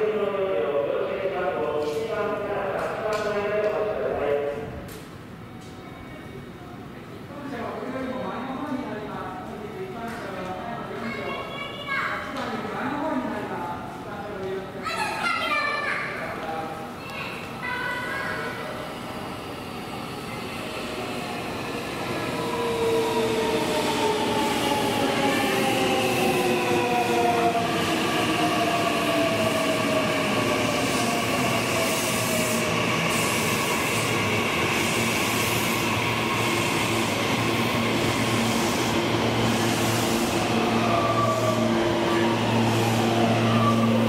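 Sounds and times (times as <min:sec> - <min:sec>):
train cars humming: 0:16.9 - 0:44.0.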